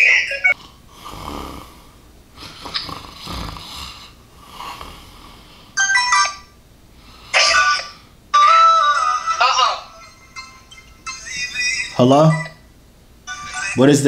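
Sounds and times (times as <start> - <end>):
man snoring: 0.6 - 5.8
electronic app chimes: 9.0 - 12.6.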